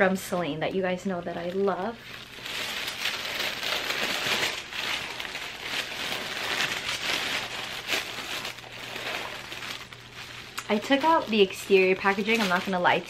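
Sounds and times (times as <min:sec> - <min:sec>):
tissue paper crinkling: 0:01.3 - 0:13.0.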